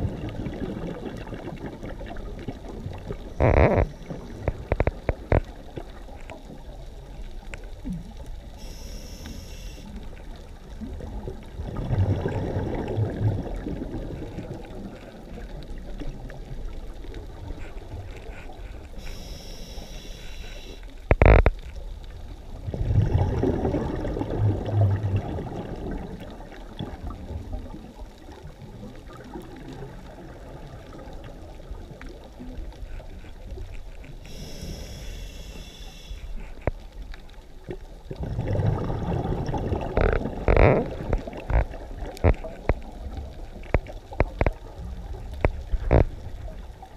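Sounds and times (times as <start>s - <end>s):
exhaled bubbles rumbling: 0.0s - 9.2s, 9.8s - 19.8s, 20.7s - 46.9s
regulator hissing inhalations: 8.6s - 9.9s, 19.0s - 20.8s, 34.3s - 36.4s.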